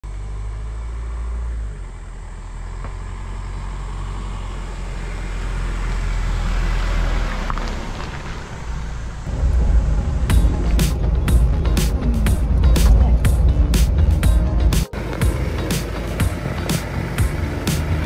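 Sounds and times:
truck engine rumbling: 0.0 - 18.0.

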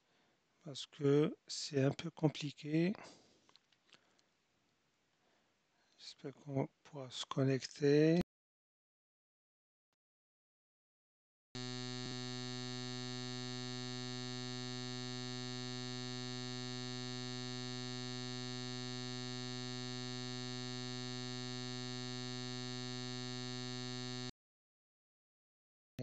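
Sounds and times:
electronic buzz: 11.6 - 24.3.

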